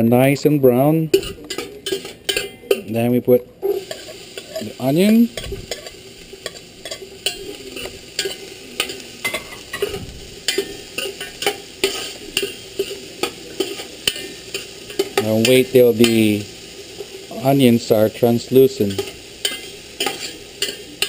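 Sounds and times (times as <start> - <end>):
onion frying in hot oil: 0.0 - 21.0
metal spoon scraping pot: 1.1 - 2.9.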